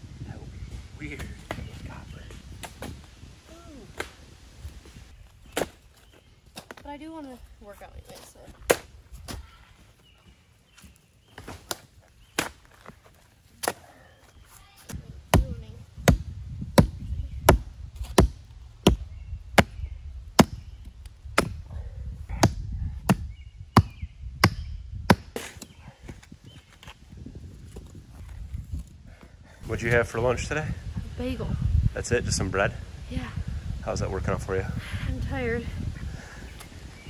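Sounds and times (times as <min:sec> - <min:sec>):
earth crunching: 0:25.2 - 0:30.4.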